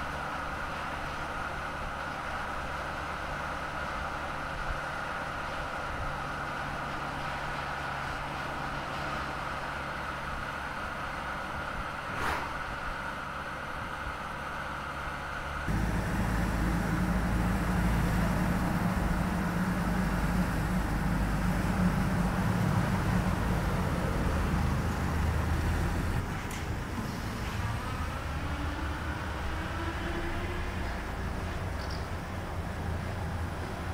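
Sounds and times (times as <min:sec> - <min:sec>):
truck rumble: 0:00.0 - 0:33.9
brief swish: 0:12.1 - 0:12.8
electric truck driving hum: 0:12.8 - 0:33.9.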